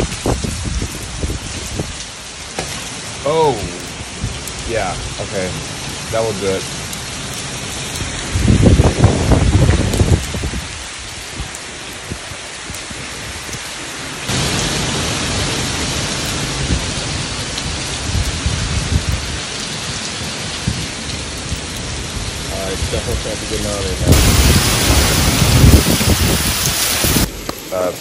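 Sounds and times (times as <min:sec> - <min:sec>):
heavy rain splashing on pavement: 0:00.0 - 0:28.0
thunder rumbling: 0:03.8 - 0:10.6, 0:14.3 - 0:27.7.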